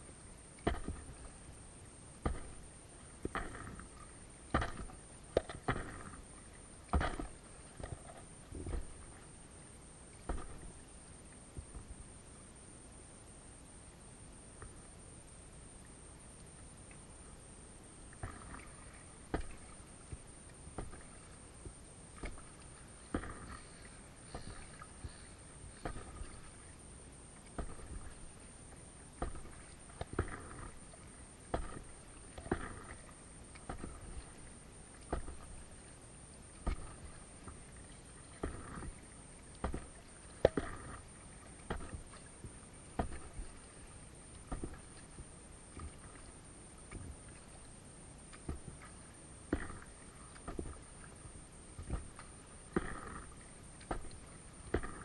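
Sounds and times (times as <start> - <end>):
paddle splashing water: 0.6 - 9.4, 10.1 - 12.0, 18.0 - 55.0
paddle tapping: 18.1 - 26.7, 27.4 - 28.4, 29.2 - 35.6, 36.5 - 37.7, 38.3 - 43.8, 44.4 - 46.3, 48.3 - 51.1, 51.8 - 55.0.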